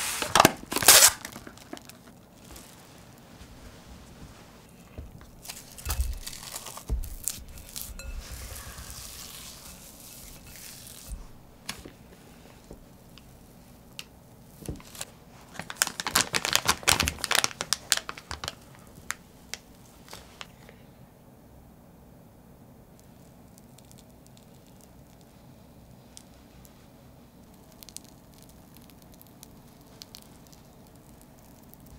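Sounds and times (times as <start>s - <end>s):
plastic bag crinkling: 0.0s - 12.1s, 14.6s - 20.5s
spatula scraping: 4.4s - 12.6s.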